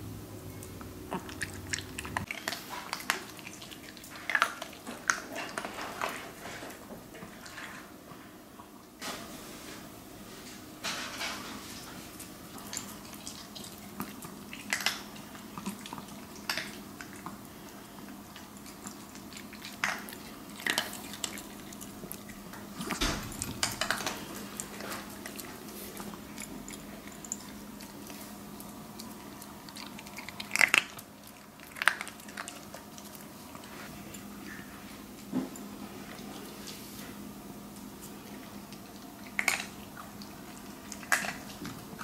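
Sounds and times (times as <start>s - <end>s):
faint steady hum: 0.0s - 42.0s
dog crunching kibble: 18.0s - 34.3s, 37.8s - 42.0s.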